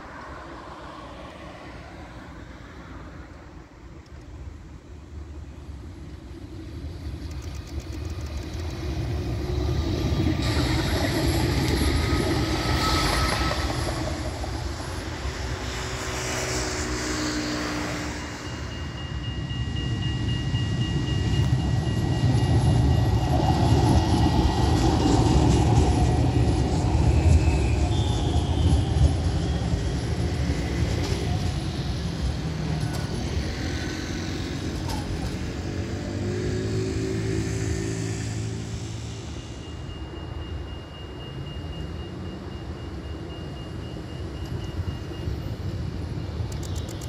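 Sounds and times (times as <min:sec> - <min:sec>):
vehicle engine hum: 0:00.0 - 0:19.0
tram running on rails: 0:00.0 - 0:47.0
high-pitched whine: 0:04.7 - 0:47.0.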